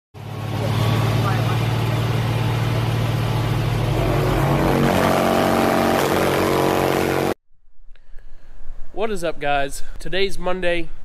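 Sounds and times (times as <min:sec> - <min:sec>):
loud distorted car stereo bass: 0:03.2 - 0:07.3.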